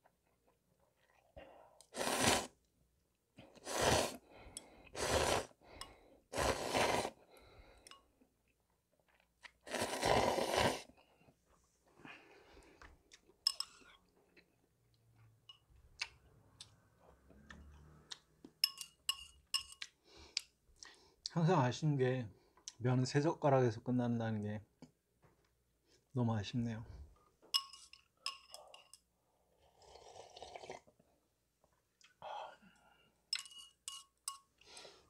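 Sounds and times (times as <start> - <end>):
person slurping broth: 1.8 - 2.6, 3.4 - 4.3, 4.9 - 5.6, 6.3 - 7.3, 9.6 - 10.9, 29.6 - 30.9.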